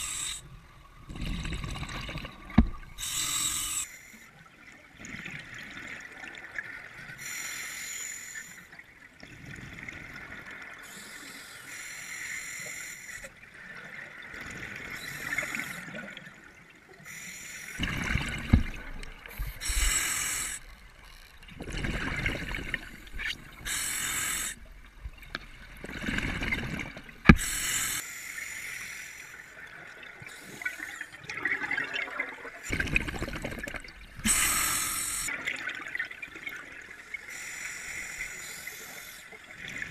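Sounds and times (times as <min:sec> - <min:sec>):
underwater bubbles gurgling: 0:00.0 - 0:03.8, 0:17.7 - 0:28.0, 0:29.6 - 0:37.1.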